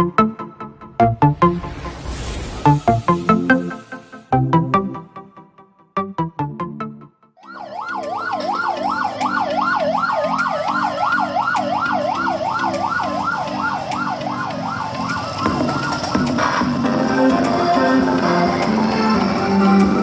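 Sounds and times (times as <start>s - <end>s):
low repeating music pattern: 0.0s - 1.7s, 2.8s - 20.0s
siren warbling: 7.4s - 17.2s.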